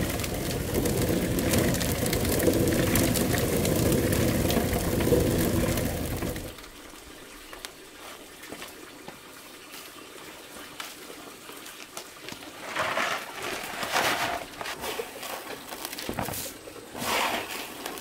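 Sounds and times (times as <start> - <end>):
grain rushing in a plastic tray: 0.0 - 6.6, 12.4 - 18.0.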